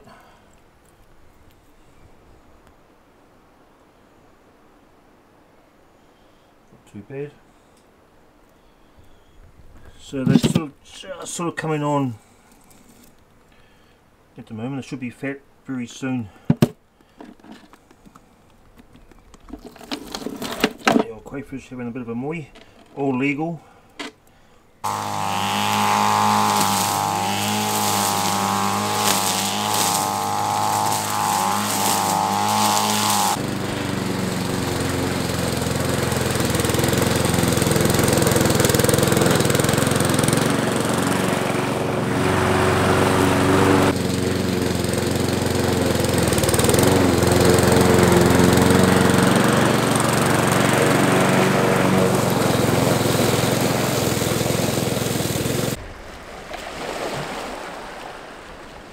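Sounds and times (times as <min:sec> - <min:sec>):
lawn mower engine cutting grass: 0:24.8 - 0:55.8.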